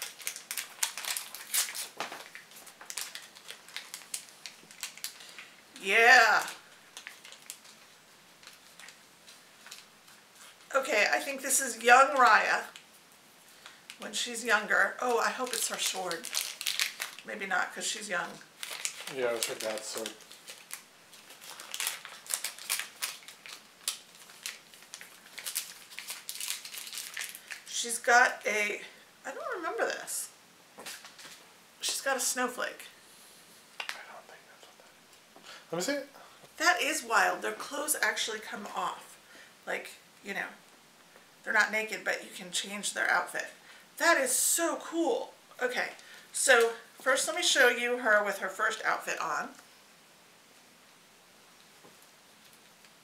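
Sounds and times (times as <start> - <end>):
plastic bag crinkling: 0.0 - 10.7, 15.0 - 27.8, 30.8 - 31.4.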